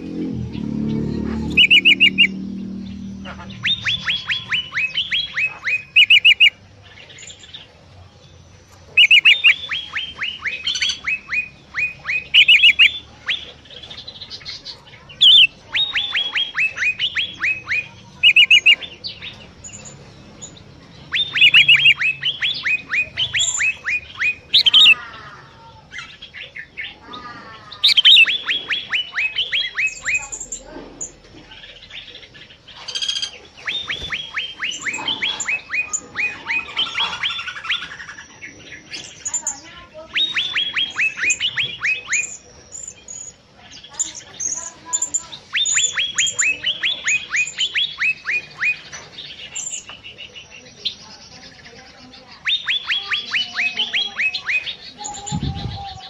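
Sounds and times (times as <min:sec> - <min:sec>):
bird singing high down-slurred notes: 0:00.0 - 0:07.6, 0:08.7 - 0:26.2, 0:26.8 - 0:31.2, 0:32.9 - 0:43.4, 0:52.2 - 0:56.0
other birds chirping: 0:00.0 - 0:56.0.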